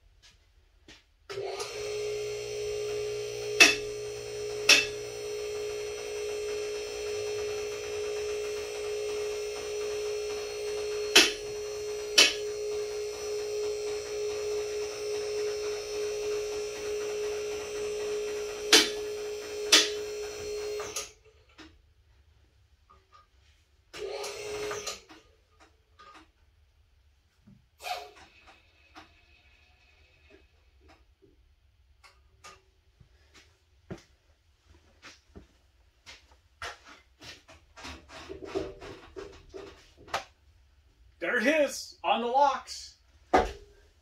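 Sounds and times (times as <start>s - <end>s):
hydraulic pump humming whine: 1.3s - 21.1s, 24.0s - 25.0s.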